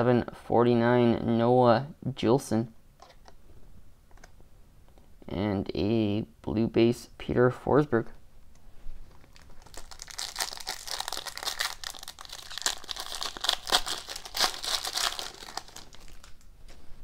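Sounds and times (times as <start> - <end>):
foil wrapper crinkling: 9.1 - 16.5.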